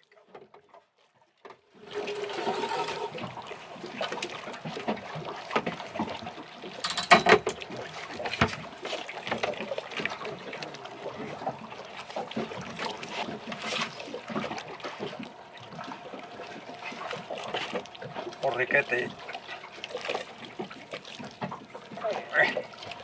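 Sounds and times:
knocks and rattles: 6.8s - 7.6s.

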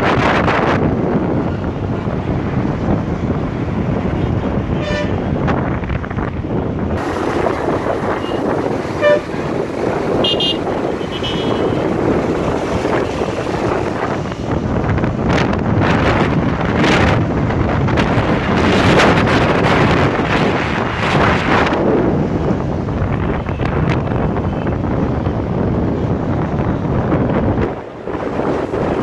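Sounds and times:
road traffic: 0.0s - 29.0s
wind rushing over microphone: 0.0s - 29.0s
vehicle horn toots: 4.8s - 5.2s, 8.2s - 9.4s, 10.2s - 11.9s.

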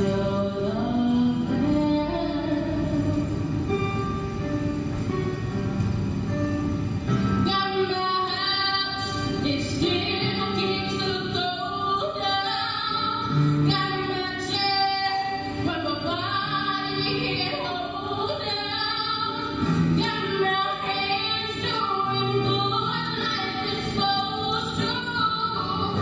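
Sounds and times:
woman singing show tune: 7.4s - 26.0s.

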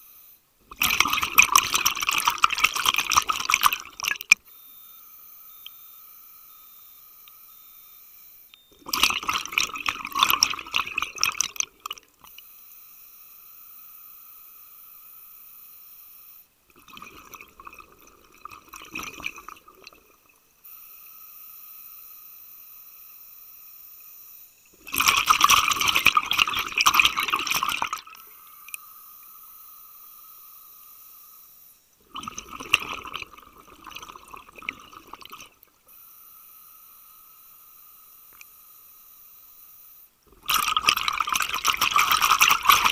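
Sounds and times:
faint hum: 0.0s - 42.9s
underwater exhaled air bubbles: 0.7s - 4.4s, 8.8s - 12.1s, 16.7s - 20.2s, 24.8s - 28.2s, 32.1s - 35.7s, 40.3s - 42.9s.

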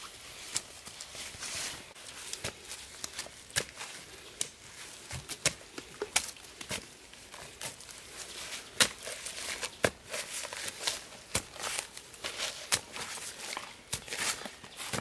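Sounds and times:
dirt and leaves crackling: 0.0s - 15.0s
hand tool striking soil: 8.7s - 15.0s.

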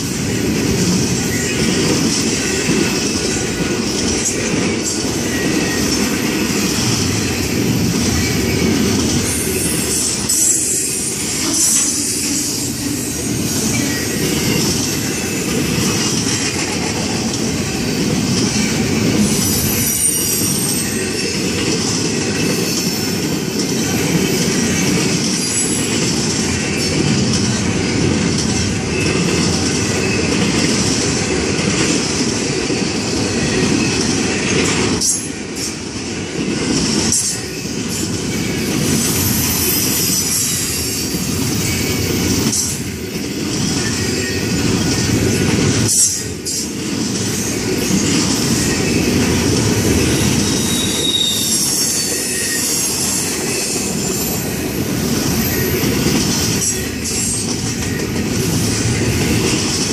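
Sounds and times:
train wheels rumbling on rail: 0.0s - 59.9s
high wheel squeal: 18.7s - 21.4s, 38.4s - 42.8s, 50.0s - 59.0s.

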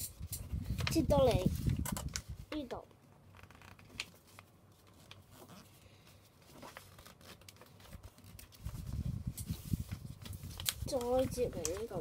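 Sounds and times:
paper rustling and crinkling: 0.2s - 12.0s.

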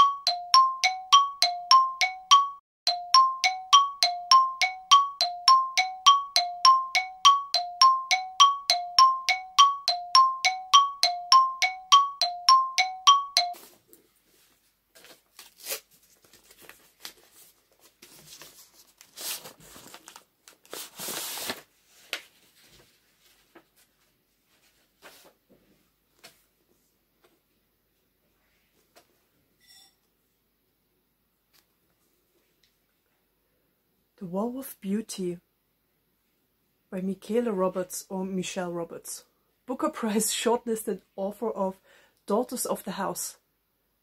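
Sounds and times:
two-note bell chime: 0.0s - 13.6s
paper crinkling and rustling: 14.4s - 25.4s.

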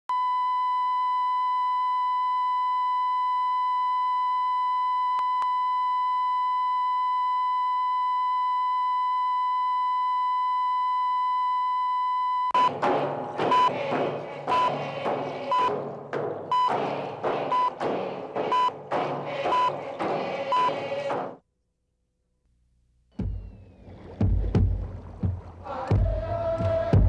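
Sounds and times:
short beeps: 18.5s - 18.8s.

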